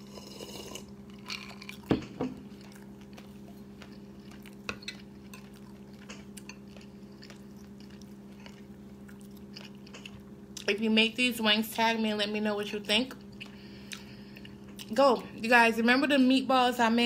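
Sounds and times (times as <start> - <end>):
person drinking from a glass: 0.0 - 1.8
steady low hum: 0.0 - 17.0.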